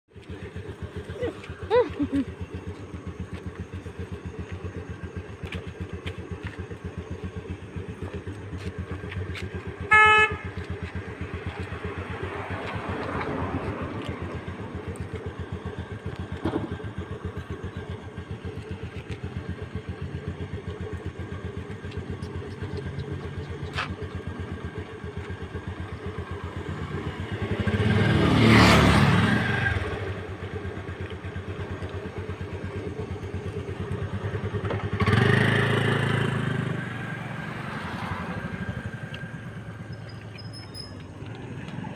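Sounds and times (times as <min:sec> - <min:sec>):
vehicle horn toot: 0:09.8 - 0:10.8
vehicle passing close: 0:10.8 - 0:15.8, 0:26.2 - 0:30.6, 0:33.8 - 0:41.9.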